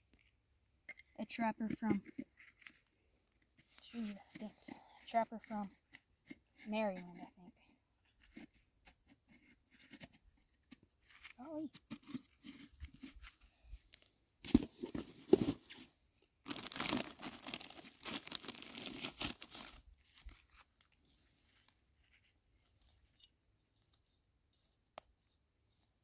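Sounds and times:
plastic zipper bag crinkling: 16.4 - 19.8.

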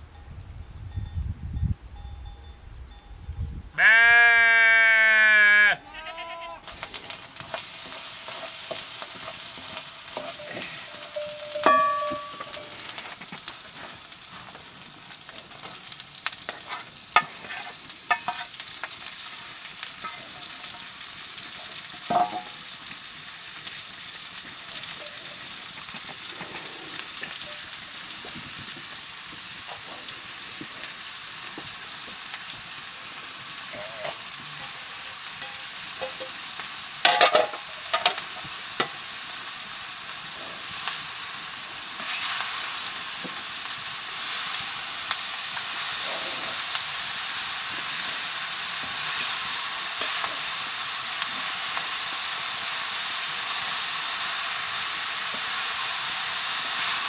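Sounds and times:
sheep bleating: 3.8 - 6.7
mushrooms sizzling in a pan: 6.6 - 57.0
utensils clinking against a pan: 6.7 - 13.3, 16.5 - 18.6, 20.0 - 21.0, 21.9 - 22.6, 33.7 - 39.0.

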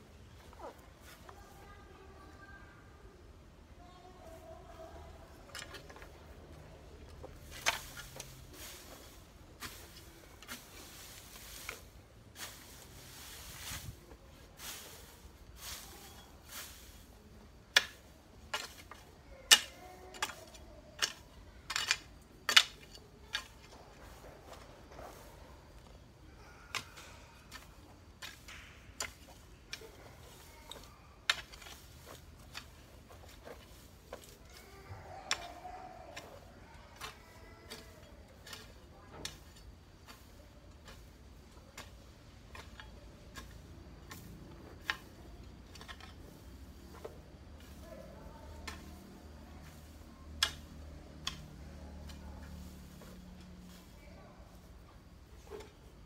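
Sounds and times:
hoe chopping into soil: 30.2 - 34.4.

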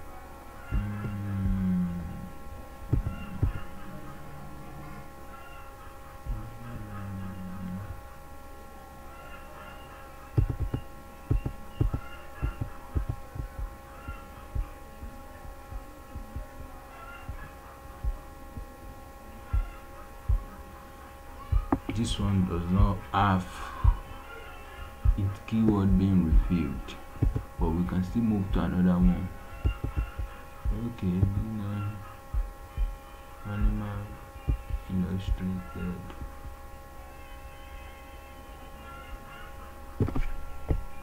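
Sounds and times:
steady background hum: 0.0 - 41.0
brief low hums: 0.7 - 5.0, 6.2 - 8.1
low thumps and knocks: 2.9 - 3.6, 10.4 - 13.8, 27.2 - 27.6, 28.5 - 31.5, 40.0 - 40.9.

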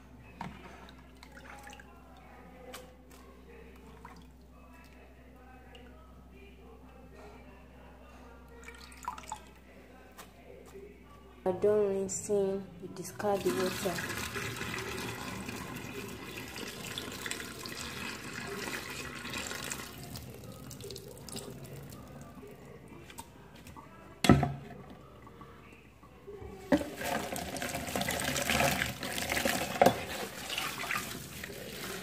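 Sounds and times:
water splashing into sink: 13.4 - 22.2, 26.7 - 32.0
water pouring into a metal sink: 13.4 - 22.3, 26.7 - 32.0.

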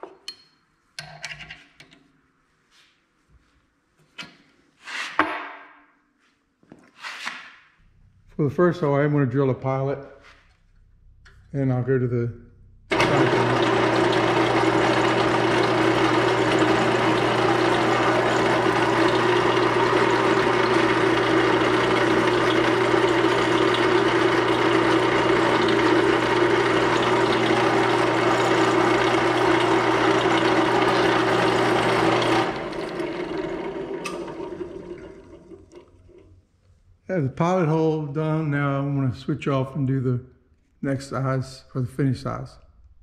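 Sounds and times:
motor winding down: 12.9 - 36.2
drill press drilling: 12.9 - 36.3.

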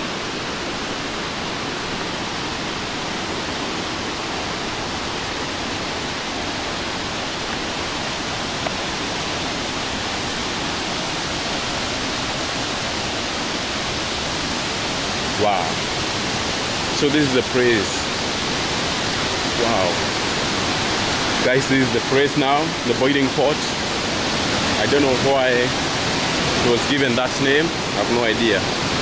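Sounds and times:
white water rushing: 0.0 - 29.0.

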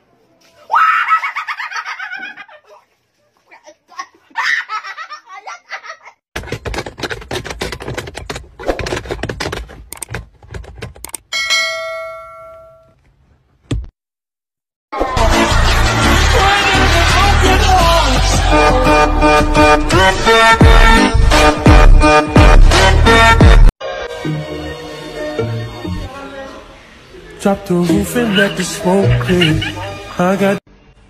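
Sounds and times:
shrieking laughter: 0.7 - 2.9, 3.6 - 6.2, 27.9 - 30.2
rapid clattering knocks: 6.4 - 11.2
bell chime: 11.4 - 12.9
loud music: 15.0 - 26.2.

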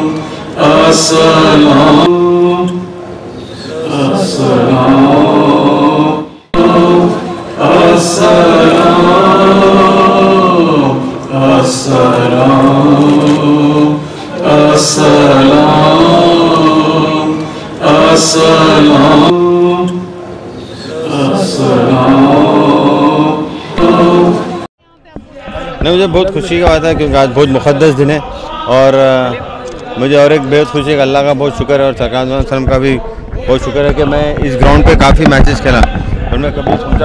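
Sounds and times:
voices chanting unaccompanied: 0.0 - 37.0.

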